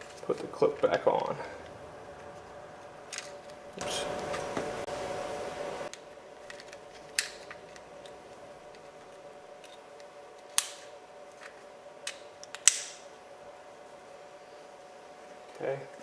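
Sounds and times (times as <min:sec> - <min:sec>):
metal clicks and snaps: 0:12.0 - 0:13.0.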